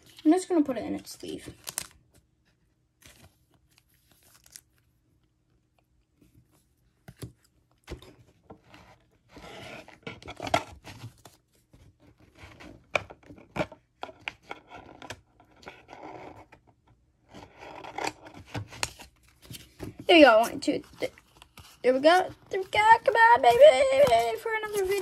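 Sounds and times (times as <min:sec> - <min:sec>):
card scraping in plastic sleeve: 0:18.7 - 0:25.0.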